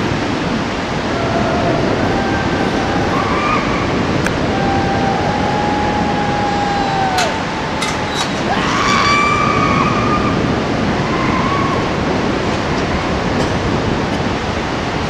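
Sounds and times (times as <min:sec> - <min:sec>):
whitewater rapids roaring: 0:00.0 - 0:15.0
person yelling: 0:02.1 - 0:09.5.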